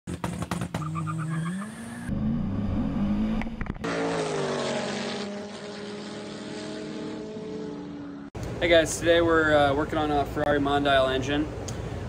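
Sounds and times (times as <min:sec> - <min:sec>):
car engines accelerating hard: 0:00.1 - 0:08.3.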